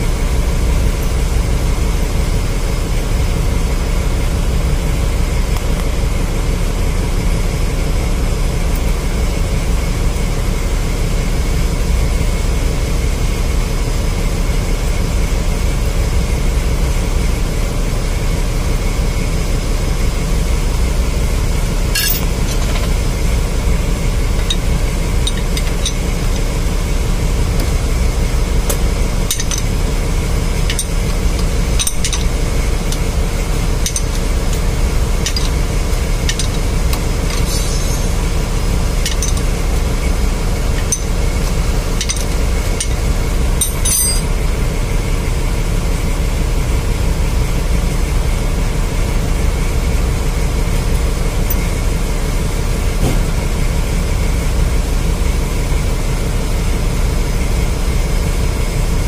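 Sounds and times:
engine-room machinery drone: 0.0 - 59.0
spanner clinking on bolts: 21.9 - 23.0, 24.3 - 26.5, 28.7 - 29.8, 30.5 - 40.0, 40.6 - 44.4.

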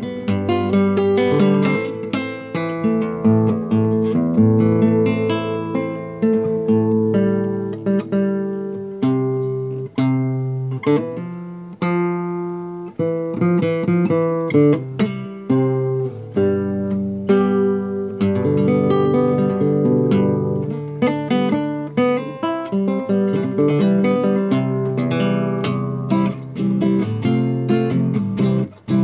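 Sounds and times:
acoustic guitar playing: 0.0 - 29.0.

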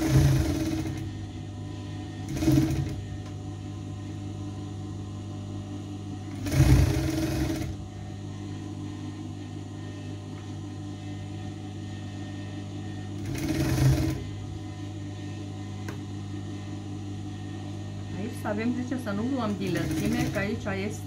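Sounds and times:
sewing machine stitching: 0.0 - 1.1, 2.2 - 3.0, 6.3 - 7.8, 13.2 - 14.2, 19.5 - 20.6
steady low hum: 0.0 - 21.0.

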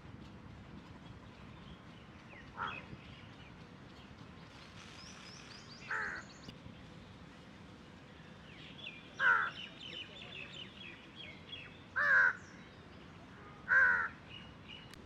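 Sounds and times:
crow cawing: 2.6 - 2.9, 5.9 - 6.3, 9.2 - 9.6, 12.0 - 12.4, 13.7 - 14.2.

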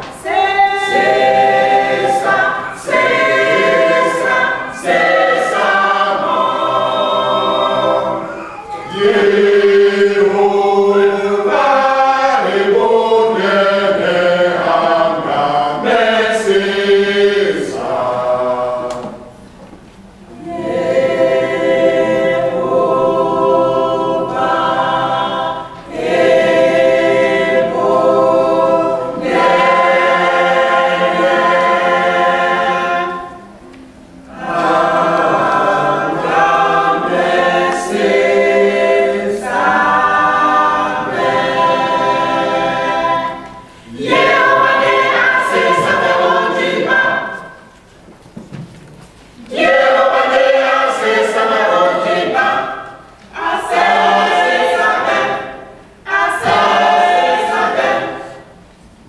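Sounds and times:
mixed choir singing: 0.0 - 19.5, 20.1 - 48.0, 49.3 - 59.0.

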